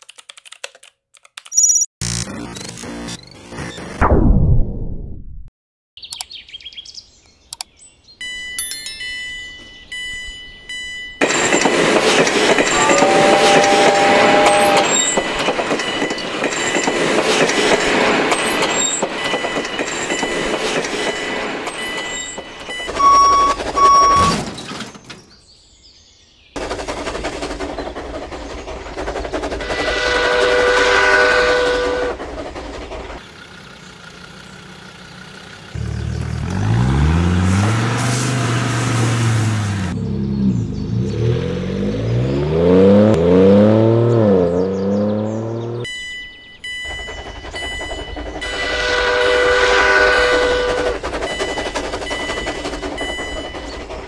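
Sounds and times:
logo chime: 8.2 - 11.6, 45.9 - 48.3
steam train running noise: 11.2 - 24.3, 26.6 - 35.7, 46.6 - 54.0
steam train whistle: 12.6 - 15.2, 29.6 - 32.2, 48.4 - 51.0.

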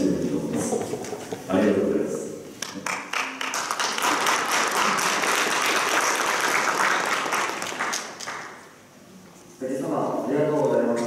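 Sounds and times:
audience applauding: 2.6 - 8.8.

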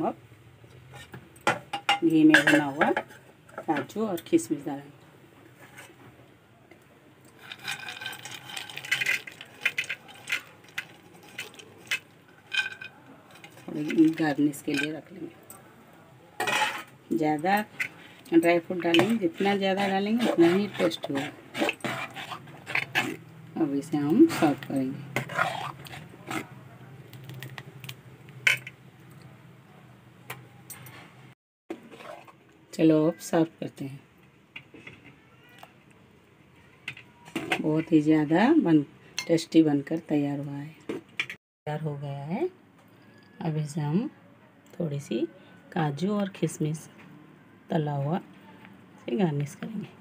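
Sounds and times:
ladle scraping a metal pot: 7.3 - 15.1, 16.4 - 23.2, 24.0 - 26.5, 31.7 - 32.4.

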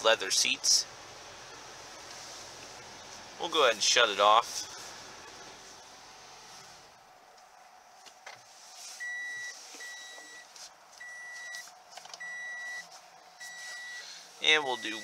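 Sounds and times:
car reminder chime beeps: 14.7 - 15.0.

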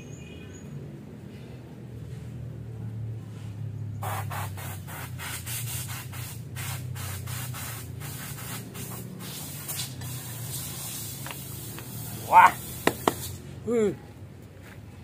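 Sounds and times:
compressed air blasts: 4.0 - 13.5.

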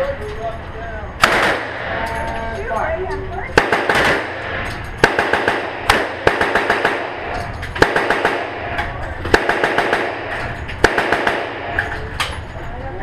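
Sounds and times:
loud single gunshots: 1.2 - 2.0, 3.6 - 11.8
rapid gunshot volleys: 1.2 - 2.0, 3.6 - 11.8.

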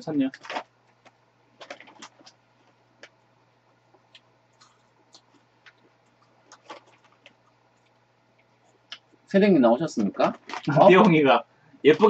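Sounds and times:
plastic snack bag crinkling: 0.2 - 3.2, 4.6 - 8.0, 9.9 - 11.2
chewing: 4.0 - 9.1.

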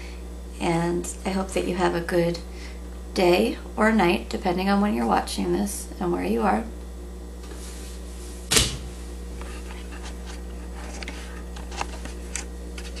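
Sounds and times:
steady low hum: 0.0 - 13.0
metal chair thump: 8.5 - 9.0.

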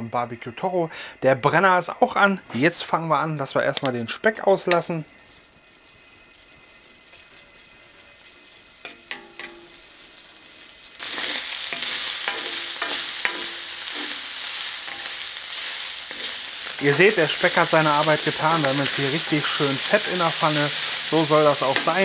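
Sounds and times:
bacon sizzling in a pan: 3.4 - 22.0
spatula scraping a pan: 11.0 - 22.0.

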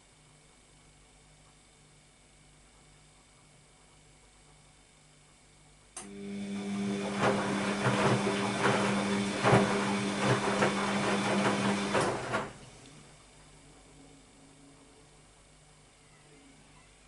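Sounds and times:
washing machine motor hum: 6.0 - 14.6
laundry and water sloshing: 6.7 - 12.6.

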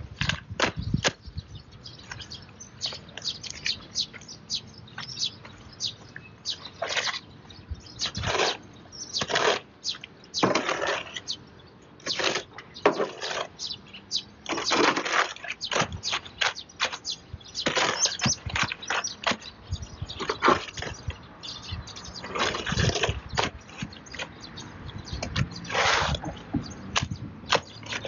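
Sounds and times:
shovel scraping concrete: 6.8 - 7.3, 8.0 - 11.4, 12.0 - 13.6, 14.4 - 19.4, 20.2 - 21.1, 22.2 - 24.3, 25.2 - 28.0.

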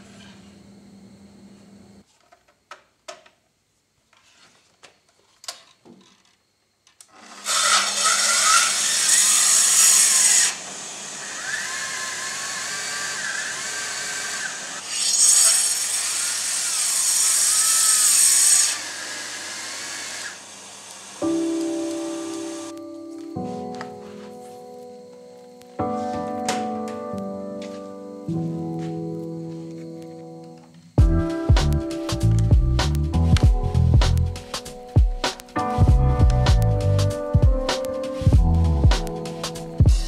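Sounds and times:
circular saw cutting wood: 7.1 - 22.7.

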